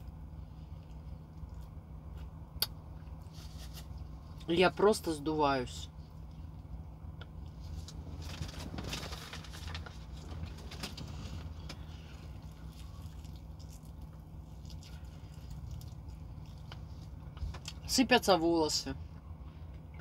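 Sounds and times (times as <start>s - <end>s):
low engine hum: 0.0s - 20.0s
plastic gloves crinkling: 7.6s - 17.3s
crunching bites of fried chicken: 11.7s - 17.8s.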